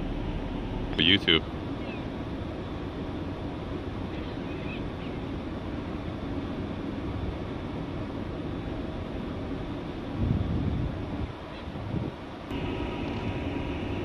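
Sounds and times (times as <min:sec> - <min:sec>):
ship low rumble: 0:00.0 - 0:14.0
wind: 0:00.0 - 0:14.0
faint bird call: 0:01.7 - 0:02.1, 0:04.1 - 0:05.2.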